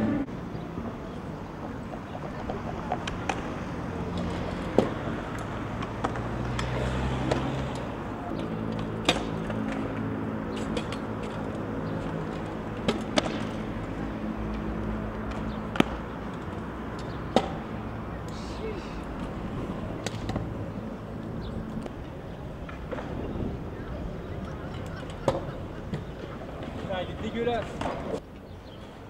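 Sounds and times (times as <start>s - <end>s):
traffic engine hum: 0.0s - 29.0s
skateboard clacks: 1.8s - 18.4s, 19.1s - 20.6s, 21.8s - 23.4s, 24.4s - 28.2s.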